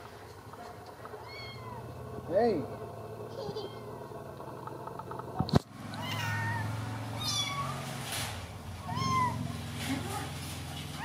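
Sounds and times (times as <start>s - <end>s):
kitten mewing: 6.0s - 7.8s, 8.8s - 9.4s.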